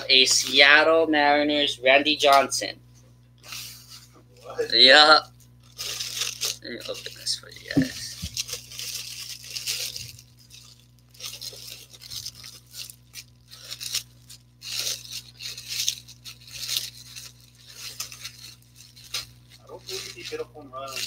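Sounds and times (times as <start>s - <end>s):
plastic bag crinkling: 5.4s - 21.0s.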